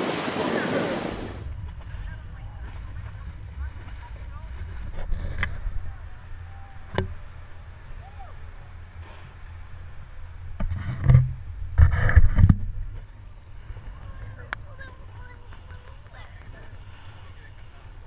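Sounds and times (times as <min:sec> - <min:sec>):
splashing spray: 0:00.0 - 0:04.9
water rushing past boat hull: 0:00.0 - 0:18.0
low steady rumble: 0:01.1 - 0:18.0.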